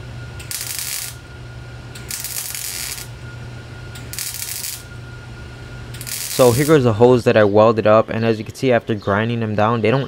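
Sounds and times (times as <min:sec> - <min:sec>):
low hum: 0:00.0 - 0:10.0
welding bursts: 0:00.4 - 0:01.3, 0:02.0 - 0:03.2, 0:04.0 - 0:05.0, 0:06.0 - 0:06.9.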